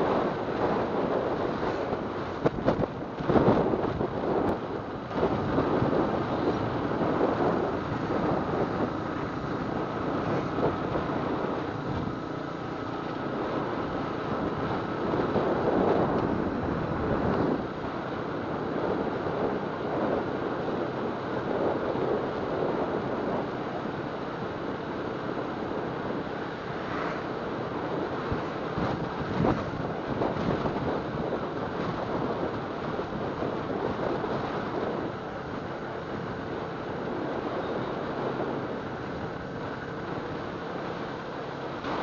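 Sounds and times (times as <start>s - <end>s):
wind buffeting microphone: 0.0s - 42.0s
motorcycle engine: 4.6s - 18.8s.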